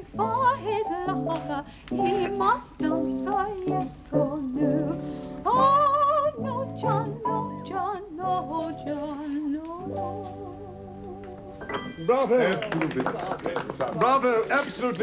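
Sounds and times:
woman singing with vibrato: 0:00.0 - 0:11.6
instrumental accompaniment: 0:00.0 - 0:12.7.

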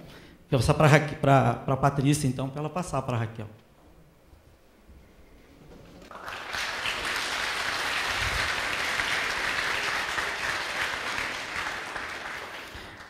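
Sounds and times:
audience applause: 0:06.0 - 0:13.0.

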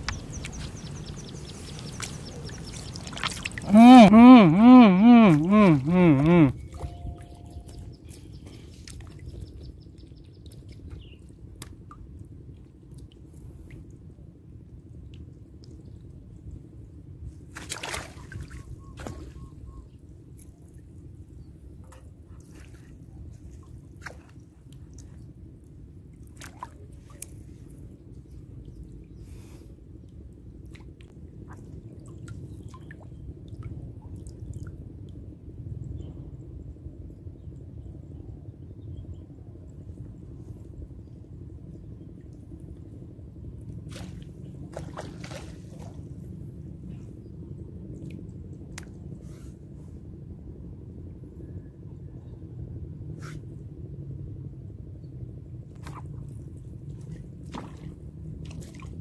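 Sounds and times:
water dripping and trickling: 0:00.0 - 0:04.1
wind rumble on microphone: 0:00.0 - 0:04.2, 0:05.3 - 0:59.0
rustle: 0:53.2 - 0:53.6.

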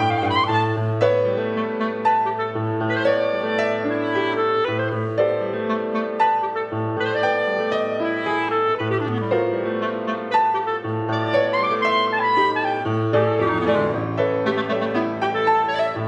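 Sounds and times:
clarinet: 0:00.0 - 0:16.0
grand piano: 0:00.0 - 0:16.0.

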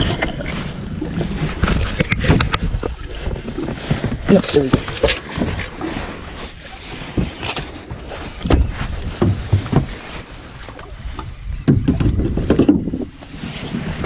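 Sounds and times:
wind buffeting microphone: 0:00.0 - 0:14.0
knocks and thumps: 0:07.1 - 0:13.1.

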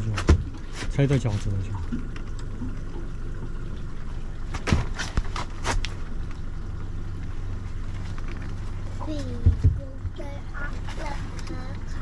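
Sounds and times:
boat engine idling: 0:00.0 - 0:12.0
sharp knocks and clatters: 0:04.5 - 0:06.0.

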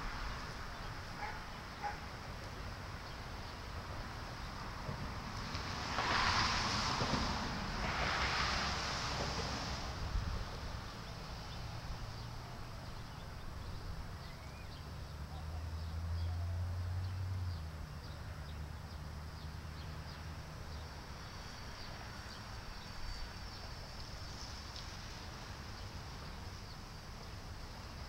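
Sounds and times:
traffic rumble: 0:00.0 - 0:28.0
small birds chirping: 0:11.0 - 0:24.8.

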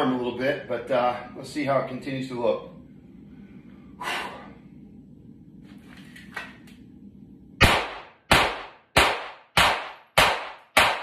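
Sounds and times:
pistol shots ringing off walls: 0:07.6 - 0:11.0.

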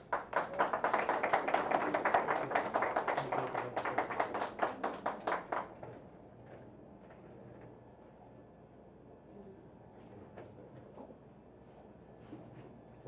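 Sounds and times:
small group applauding: 0:00.0 - 0:06.0.

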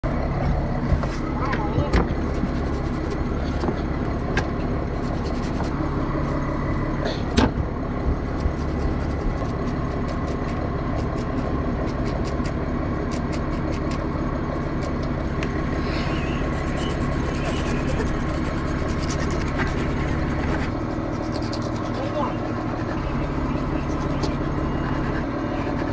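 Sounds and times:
engine rumble with whine: 0:00.0 - 0:25.9.

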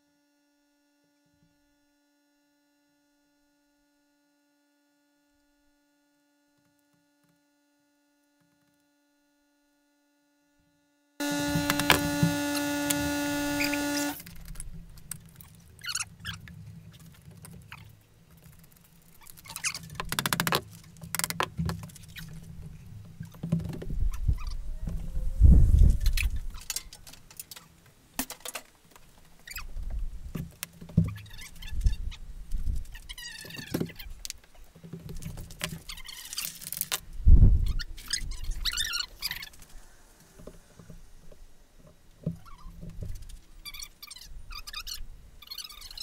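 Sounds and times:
steady buzzing tone: 0:11.2 - 0:14.3.

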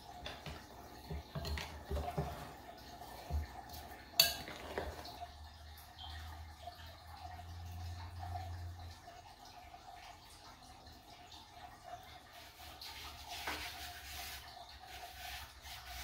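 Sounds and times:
dough mixed by hand in glass jug: 0:00.0 - 0:08.7, 0:12.2 - 0:16.0
kitchenware clink: 0:00.2 - 0:02.6, 0:04.1 - 0:05.2.

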